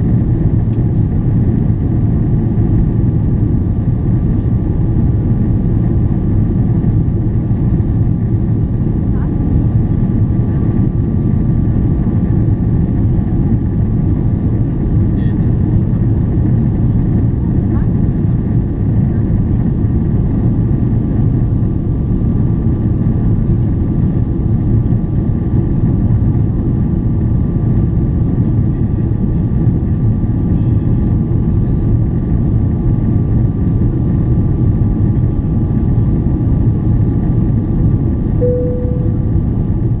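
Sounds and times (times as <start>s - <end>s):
airplane cabin roar: 0.0s - 40.0s
short steady tone: 38.4s - 39.8s.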